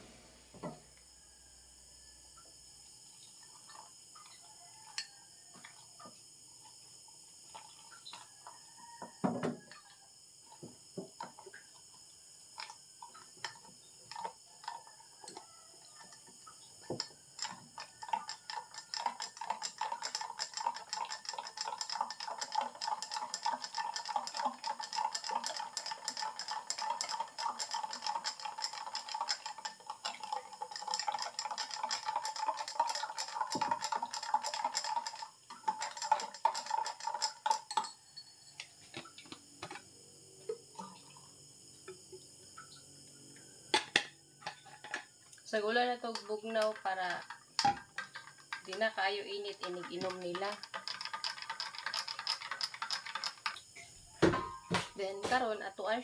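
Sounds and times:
spoon clinking against glass: 36.9 - 38.6.

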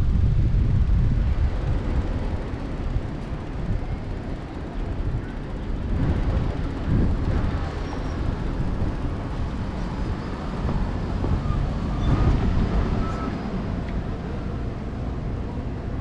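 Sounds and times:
street traffic noise: 0.0 - 16.0
wind rumbling on microphone: 0.0 - 16.0.

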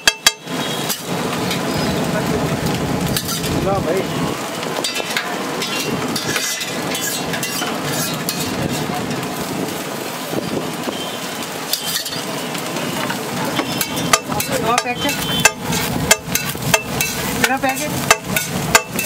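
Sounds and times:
rice sizzling on a griddle: 0.0 - 19.0
metal spatula clicks and scrapes: 4.8 - 8.9, 11.7 - 12.3, 13.8 - 19.0.

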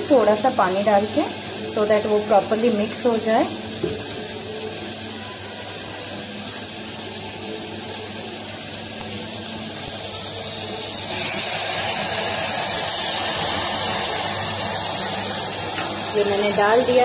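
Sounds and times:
vegetables sizzling in hot oil: 0.0 - 17.0
water poured into hot pan: 7.0 - 17.0.

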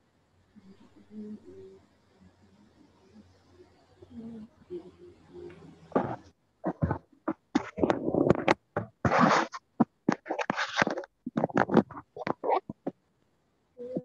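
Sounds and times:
scratching and rustling on microphone: 5.5 - 13.0.

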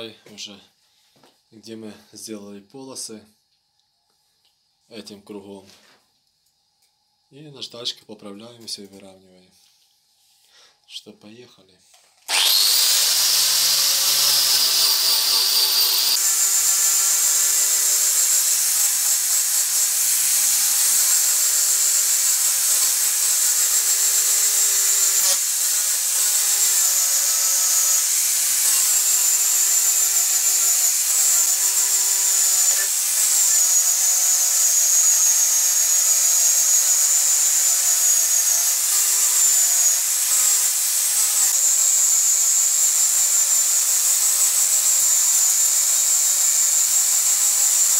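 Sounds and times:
angle grinder sanding wood: 12.3 - 47.9.

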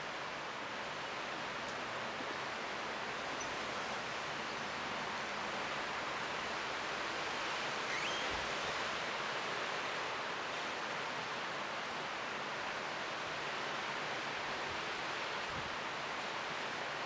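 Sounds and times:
leaves rustling in wind: 0.0 - 17.0.

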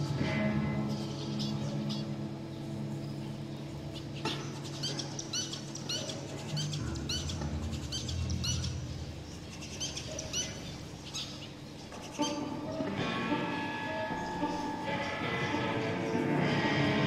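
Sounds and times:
electric guitar drone and hum: 0.0 - 17.0
finches giving nasal calls: 4.0 - 12.9
guitar strings ringing: 12.2 - 17.0.

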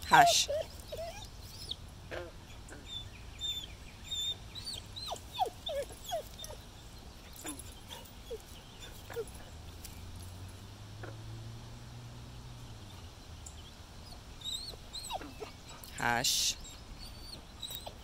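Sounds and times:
dog whining and whimpering: 0.1 - 6.6, 14.1 - 15.8, 16.6 - 18.0.

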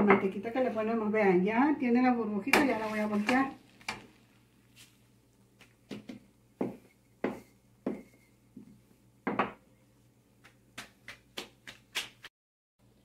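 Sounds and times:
dough knocks and slaps: 2.5 - 4.1, 10.4 - 12.3.

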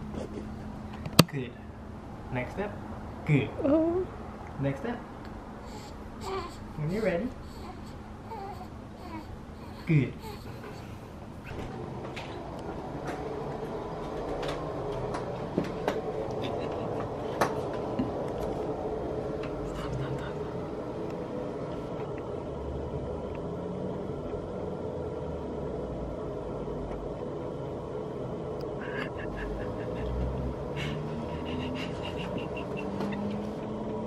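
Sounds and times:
low rumble: 11.2 - 31.6
adults laughing softly: 16.3 - 18.2, 28.8 - 33.6.

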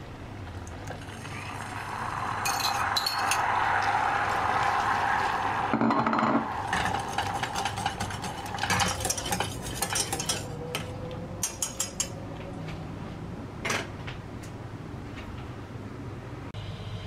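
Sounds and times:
low sizzle: 0.0 - 12.1
whisk scraping a metal pan: 6.1 - 10.6.

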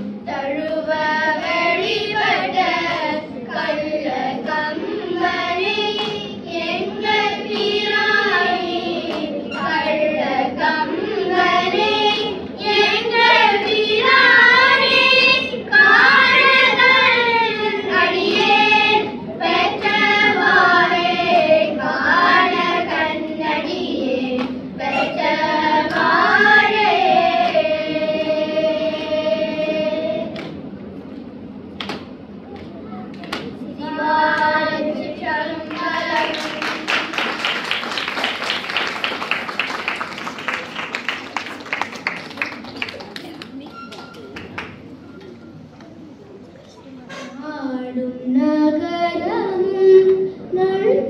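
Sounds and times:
children singing a hymn: 0.3 - 30.4, 33.8 - 37.8.

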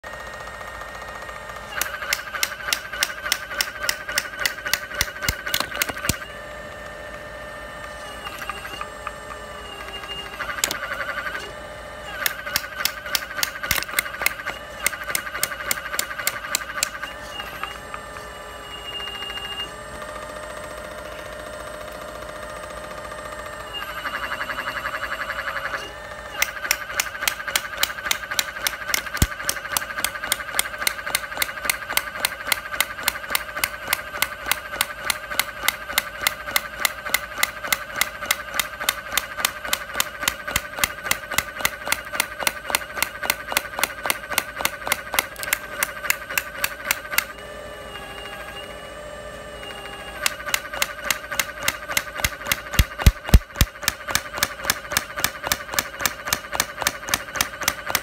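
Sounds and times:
hydraulic breaker hammering: 1.4 - 6.4, 8.2 - 18.0, 26.3 - 47.3, 50.2 - 58.0.

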